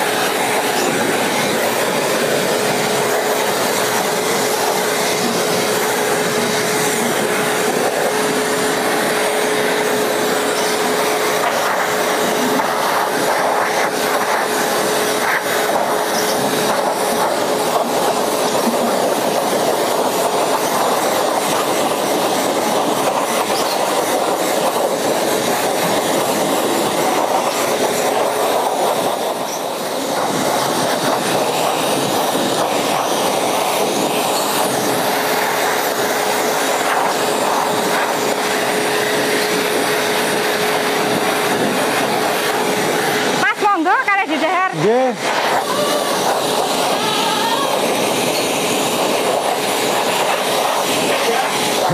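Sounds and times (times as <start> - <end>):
shop vacuum running: 0.0 - 51.9.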